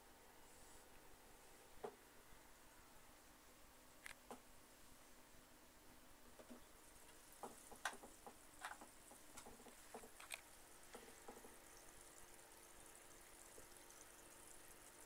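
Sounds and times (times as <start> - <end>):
small ticks and pops: 6.4 - 11.6
aquarium bubbles fizzing: 7.2 - 15.0.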